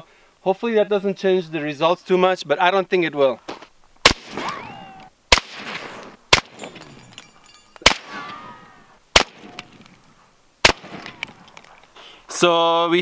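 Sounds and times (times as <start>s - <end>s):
suppressed rifle shots: 4.0s - 6.9s, 7.8s - 9.9s, 10.6s - 11.6s.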